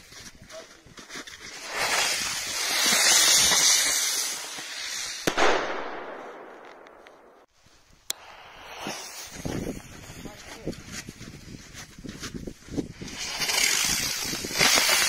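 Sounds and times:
firework hissing sparks: 1.4 - 5.6, 8.1 - 10.1, 12.9 - 15.0
firework bang: 1.6 - 7.5.

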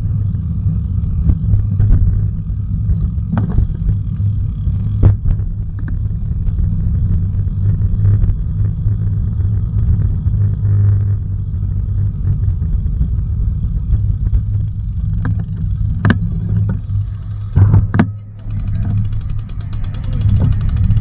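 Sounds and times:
wind and road noise: 0.0 - 21.0
sharp clicks and knocks: 1.2 - 8.8, 13.9 - 21.0.

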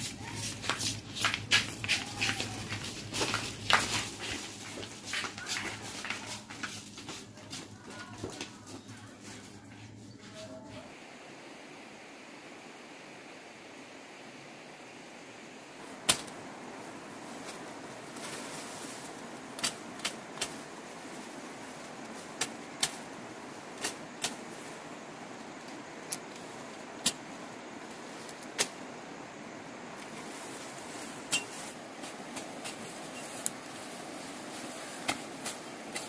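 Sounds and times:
leaves rustling: 0.0 - 36.0.

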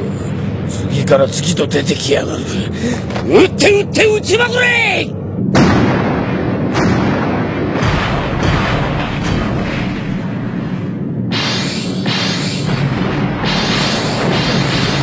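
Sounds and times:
continuous rumble: 0.0 - 15.0
explosions: 5.4 - 15.0
gunfire: 5.5 - 10.5, 11.3 - 15.0.

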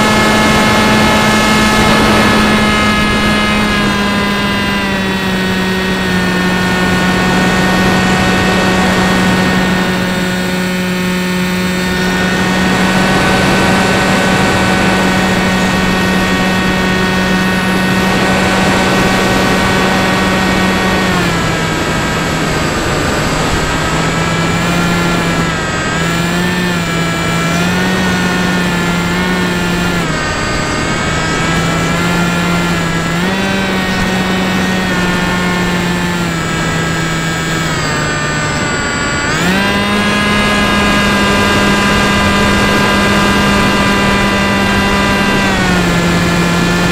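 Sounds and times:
model plane motor whine: 0.0 - 46.9.

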